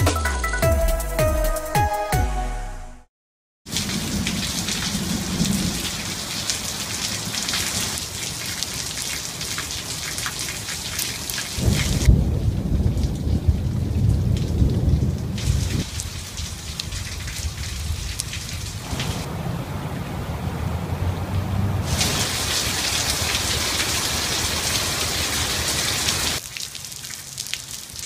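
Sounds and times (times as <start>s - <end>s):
rain splashing: 3.7s - 28.0s
deep rumble: 12.1s - 22.1s.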